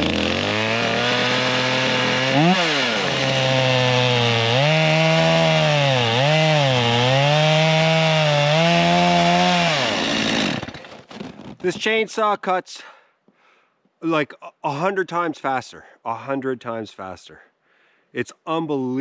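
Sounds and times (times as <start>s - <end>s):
chainsaw revving: 0.0s - 11.1s
chainsaw cutting tree trunk: 0.0s - 11.6s.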